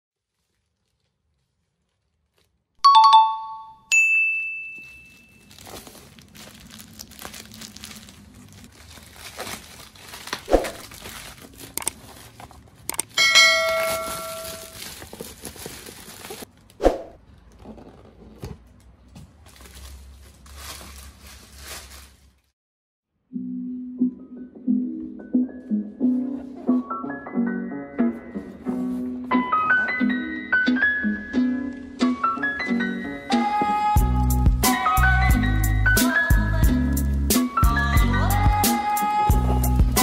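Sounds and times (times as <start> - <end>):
plastic bag crinkling: 0.2 - 2.8, 4.8 - 16.8, 19.3 - 22.5
clicks: 12.9 - 13.1.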